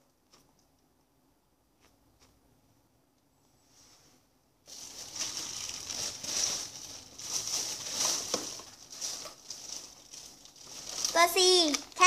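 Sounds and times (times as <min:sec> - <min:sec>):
plastic packaging crinkling: 0:04.7 - 0:12.0.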